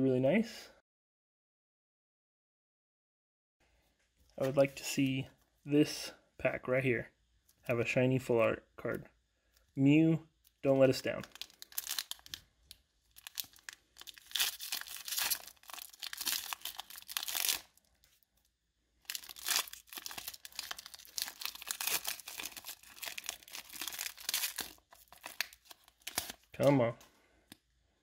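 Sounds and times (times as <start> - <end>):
foil wrapper tearing and crinkling: 11.2 - 18.1, 19.0 - 26.7.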